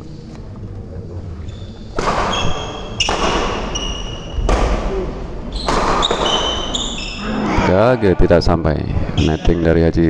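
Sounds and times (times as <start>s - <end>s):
shoes squeaking on court floor: 1.4s - 4.5s, 5.5s - 7.3s
racket striking shuttlecock: 2.0s - 5.0s, 5.6s - 6.7s.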